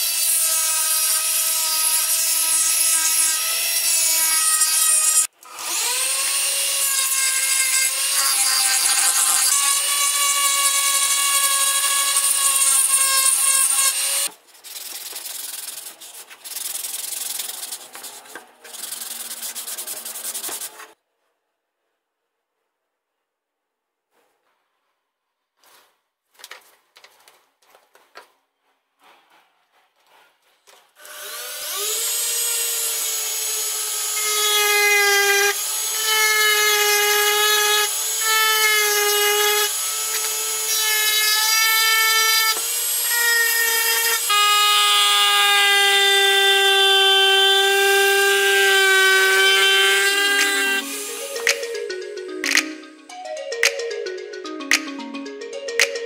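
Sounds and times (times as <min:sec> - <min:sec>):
metal point scratching wood: 0:08.0 - 0:21.0.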